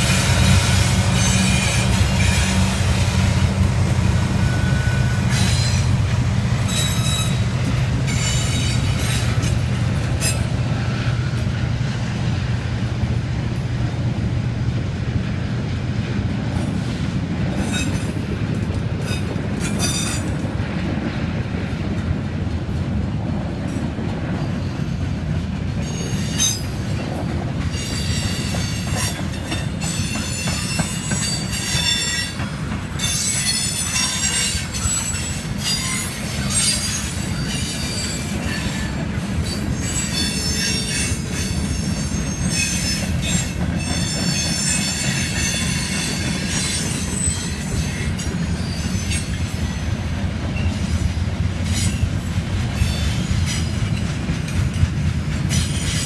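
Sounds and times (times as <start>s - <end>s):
locomotive engine drone: 0.0s - 17.6s
freight cars rumbling: 0.0s - 56.0s
metallic wheel squeals: 0.1s - 3.5s, 4.3s - 6.0s, 6.6s - 9.6s, 27.8s - 50.0s.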